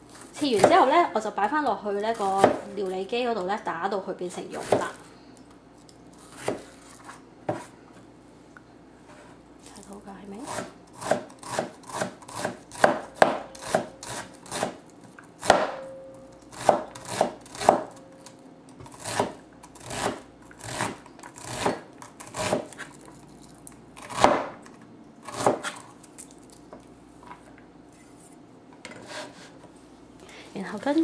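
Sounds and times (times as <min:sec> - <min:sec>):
knife chopping on plastic board: 0:00.6 - 0:00.9, 0:02.3 - 0:02.7, 0:06.3 - 0:06.7, 0:07.4 - 0:07.7, 0:10.5 - 0:14.8, 0:15.4 - 0:15.8, 0:16.6 - 0:17.9, 0:18.9 - 0:22.9, 0:24.0 - 0:24.6, 0:25.3 - 0:25.8.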